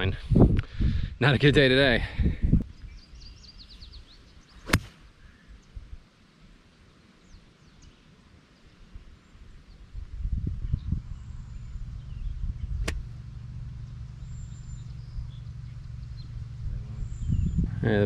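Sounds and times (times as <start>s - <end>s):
faint wind rumble: 0.0s - 6.1s, 7.2s - 18.0s
small birds chirping: 2.6s - 5.9s, 6.8s - 18.0s
golf club striking ball: 4.6s - 5.0s, 12.6s - 16.2s.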